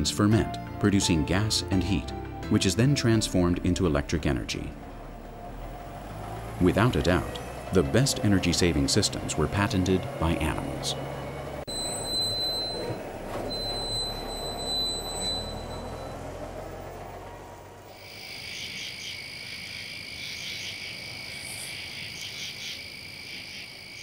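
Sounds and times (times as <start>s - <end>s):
frogs calling in chorus: 17.9s - 24.0s.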